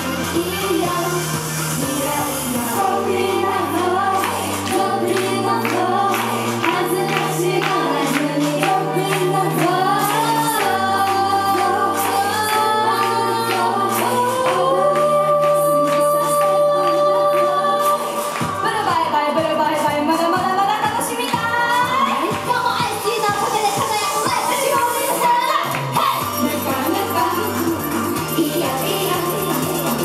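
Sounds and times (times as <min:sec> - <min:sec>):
pop song over loudspeakers: 0:00.0 - 0:30.0.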